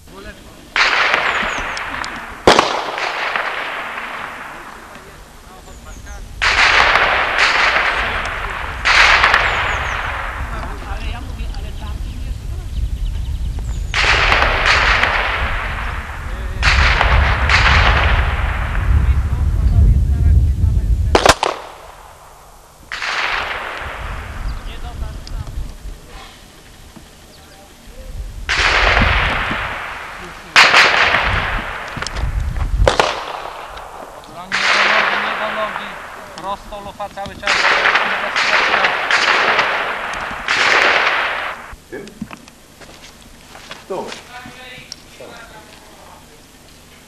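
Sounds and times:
pistol shots with ringing echo: 0.2 - 5.6, 6.4 - 11.0, 13.9 - 18.9, 21.1 - 25.0, 28.5 - 32.2, 32.8 - 41.8.

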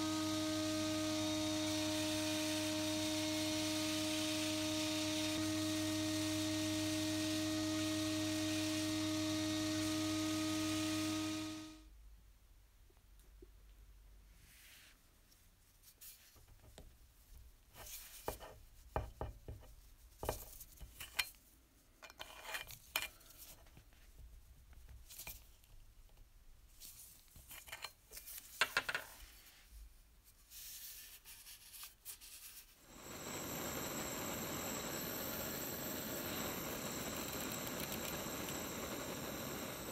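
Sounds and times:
gas torch flame hissing: 32.9 - 39.9.

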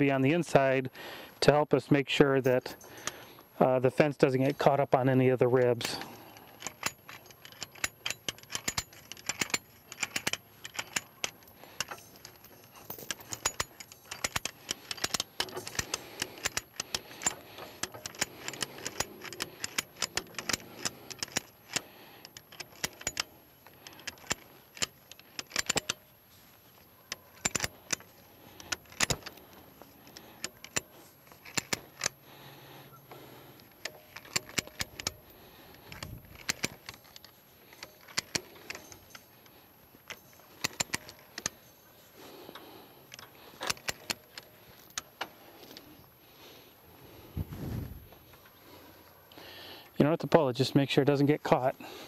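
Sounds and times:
ratchet clicking: 6.6 - 26.0, 27.1 - 32.2, 33.6 - 39.3, 40.0 - 41.6, 42.5 - 45.1.

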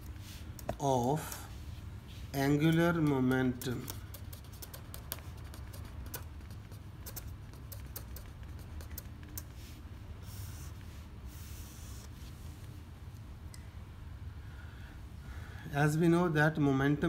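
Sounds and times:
steady low hum: 0.0 - 17.0
pen writing on paper: 3.8 - 9.4.

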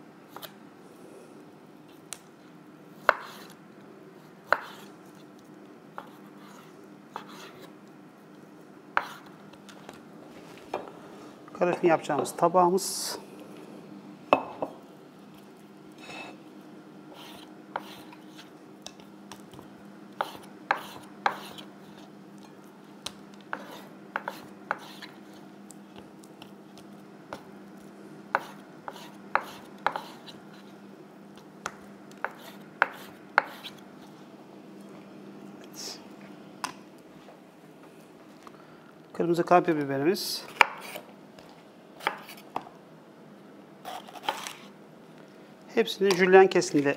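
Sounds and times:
air fryer humming: 0.0 - 2.9, 7.7 - 17.8, 18.5 - 40.4.

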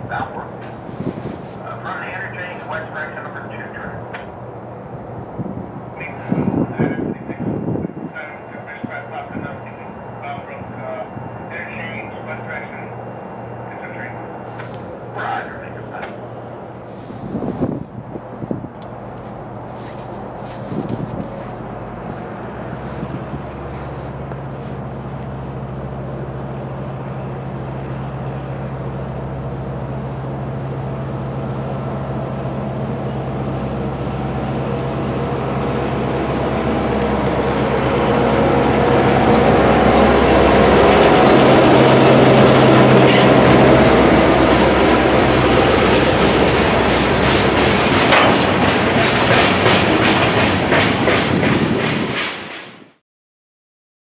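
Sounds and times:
diesel locomotive engine running: 0.0 - 53.0
train wheels clicking over rail joints: 37.9 - 53.0.

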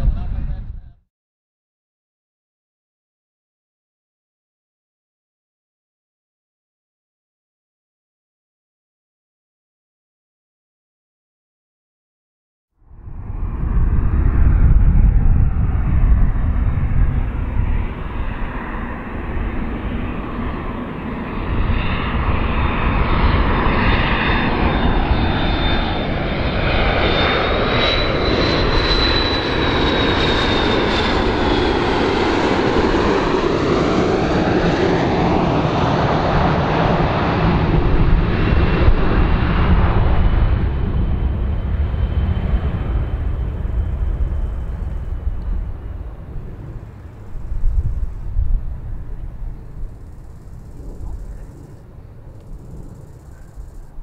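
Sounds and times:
jet airliner rumble and whine: 0.0 - 1.0, 12.8 - 54.0.

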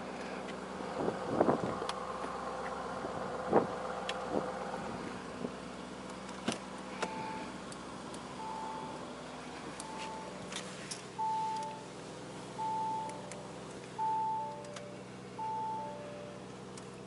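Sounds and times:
steady hum: 6.8 - 17.0
electronic chime tones: 8.4 - 9.0, 12.6 - 13.3, 14.0 - 14.8, 15.4 - 16.4.

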